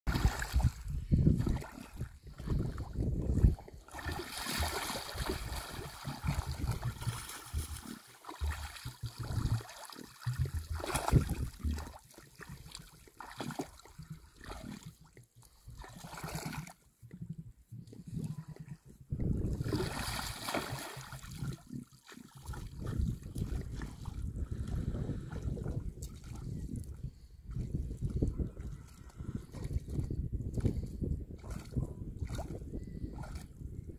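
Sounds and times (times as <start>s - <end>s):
muddy water sloshing and splashing: 0.1s - 33.9s.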